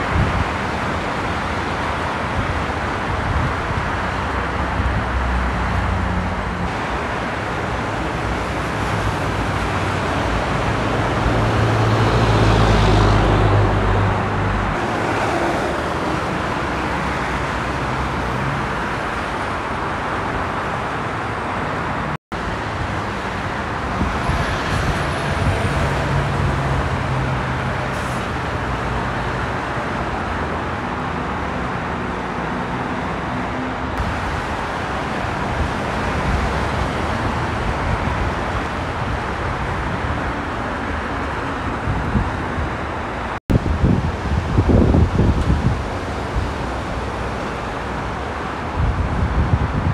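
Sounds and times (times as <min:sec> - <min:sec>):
freeway traffic: 0:00.0 - 0:49.9
heavy truck engine drone: 0:00.0 - 0:49.9.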